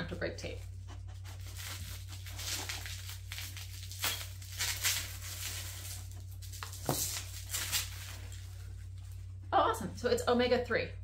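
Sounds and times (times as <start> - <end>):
plastic wrapping crinkling: 0.6 - 9.4
plastic ripping: 1.2 - 8.7.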